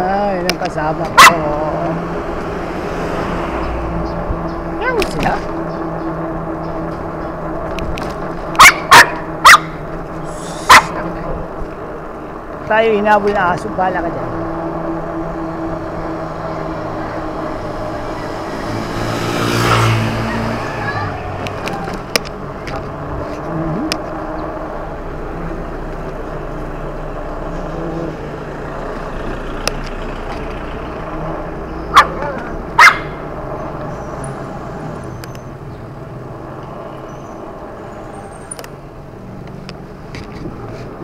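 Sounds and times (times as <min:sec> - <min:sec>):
wind and road noise: 0:00.0 - 0:41.0
dog barking: 0:08.6 - 0:09.8, 0:10.6 - 0:11.0, 0:31.9 - 0:33.2.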